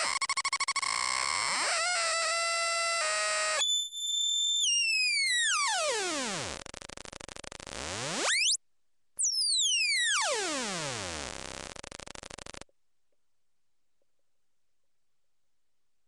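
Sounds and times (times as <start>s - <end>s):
buzzy synthesizer tones: 9.2s - 12.6s.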